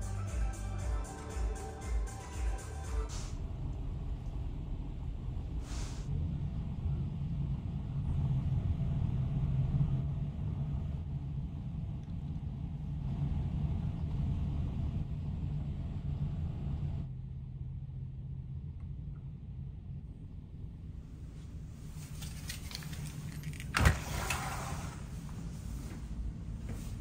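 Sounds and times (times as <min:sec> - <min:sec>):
ferry engine drone: 0:00.0 - 0:27.0
short hiss: 0:05.6 - 0:06.1.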